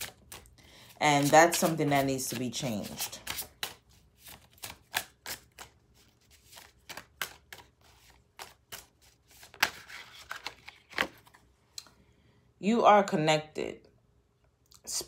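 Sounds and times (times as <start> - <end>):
cards being shuffled: 0.0 - 11.4.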